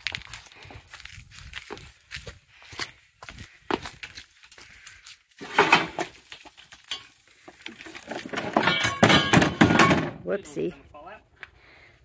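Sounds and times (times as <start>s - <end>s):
golf cart clattering on concrete: 7.9s - 10.2s.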